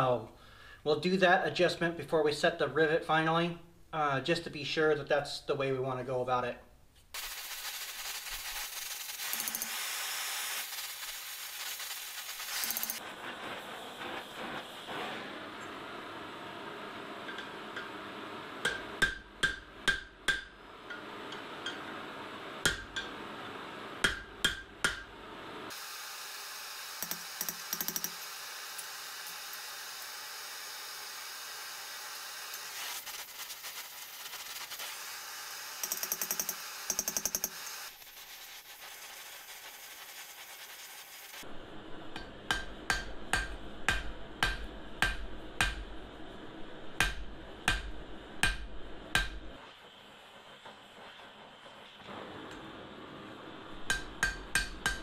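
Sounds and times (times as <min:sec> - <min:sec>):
steady hiss: 0:07.0 - 0:19.1, 0:25.6 - 0:43.0
hammer striking metal on anvil: 0:18.6 - 0:21.8, 0:22.6 - 0:23.2, 0:24.0 - 0:25.1, 0:42.2 - 0:45.9, 0:47.0 - 0:49.5, 0:53.8 - 0:55.0.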